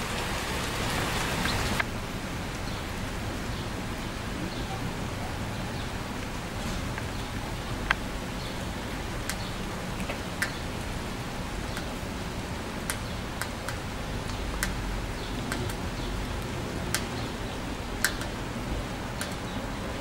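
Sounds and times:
steady rain on trees: 0:00.0 - 0:20.0
drops ticking on hard surface: 0:09.2 - 0:10.6, 0:11.7 - 0:12.0.

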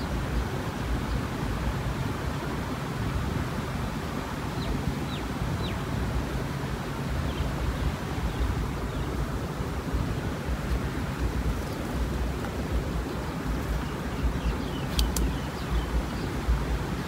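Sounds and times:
wind rumble on microphone: 0:00.0 - 0:17.0
small bird chirping: 0:11.2 - 0:16.5.

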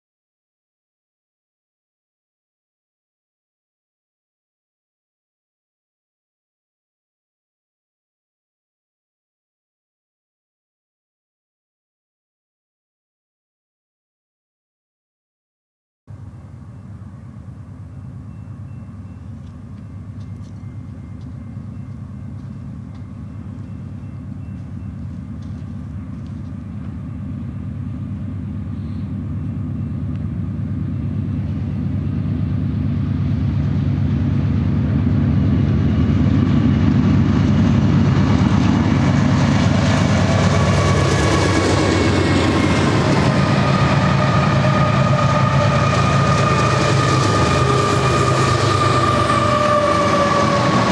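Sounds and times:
diesel locomotives passing: 0:16.1 - 0:50.9
high steady tones: 0:16.4 - 0:32.5.

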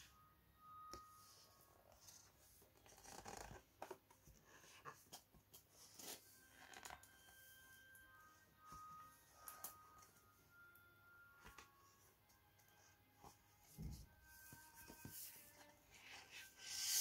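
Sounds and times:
fingers rubbing and tapping pages: 0:02.8 - 0:05.3.

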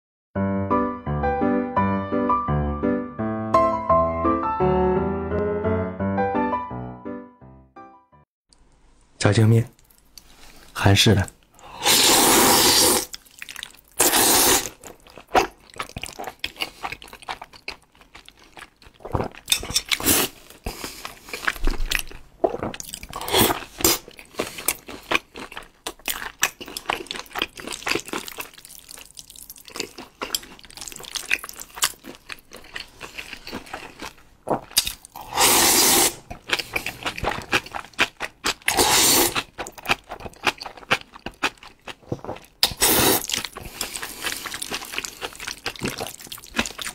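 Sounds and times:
wet chewing and smacking: 0:09.7 - 0:10.4, 0:13.1 - 0:14.0, 0:14.6 - 0:35.2, 0:36.2 - 0:46.9
noodles slurping: 0:11.7 - 0:17.2, 0:34.7 - 0:41.6, 0:42.4 - 0:46.9.

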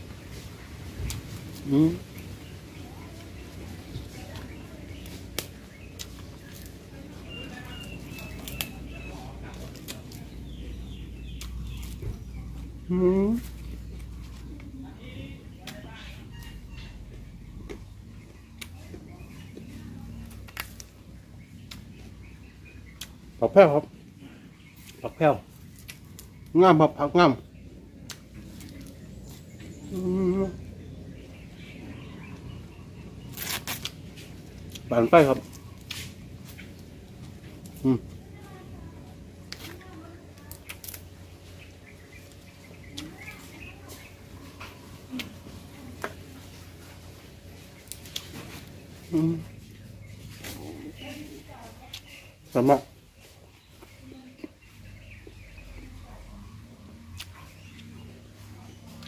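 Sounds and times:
low background rumble: 0:00.0 - 0:59.0
vegetable leaves being torn: 0:01.0 - 0:02.0, 0:04.2 - 0:14.6, 0:20.1 - 0:21.0, 0:24.8 - 0:26.6, 0:28.0 - 0:30.4, 0:32.9 - 0:38.1, 0:39.4 - 0:49.5, 0:57.1 - 0:58.1
chewing crunches and mouth clicks: 0:04.0 - 0:06.8, 0:24.8 - 0:26.5, 0:33.2 - 0:38.2, 0:40.4 - 0:41.1, 0:47.3 - 0:49.2, 0:57.2 - 0:58.0.

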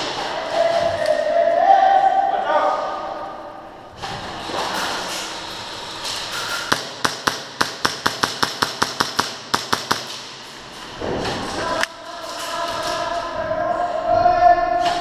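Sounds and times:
airsoft gun firing sharp shots: 0:06.7 - 0:10.4.

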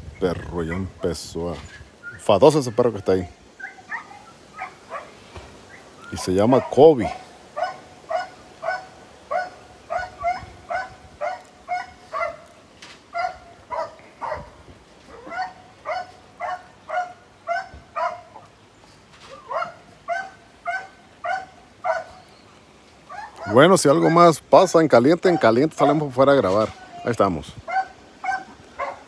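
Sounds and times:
dog barking: 0:03.6 - 0:05.2, 0:06.2 - 0:12.5, 0:13.1 - 0:18.5, 0:19.3 - 0:22.3, 0:23.1 - 0:24.3, 0:25.3 - 0:26.1, 0:27.7 - 0:29.0.

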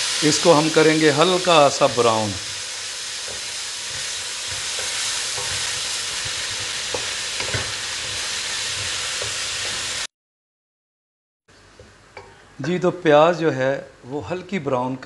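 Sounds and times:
onion sizzling in hot oil: 0:00.0 - 0:10.1.

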